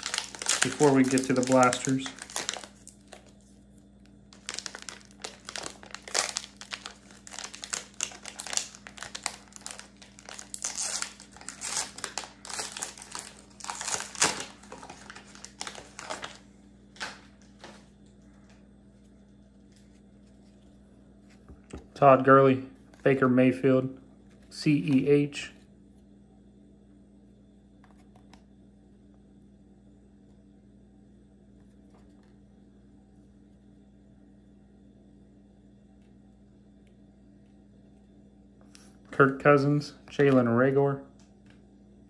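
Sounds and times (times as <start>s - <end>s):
plastic wrapping crinkling and tearing: 0.0s - 3.6s, 4.3s - 17.8s.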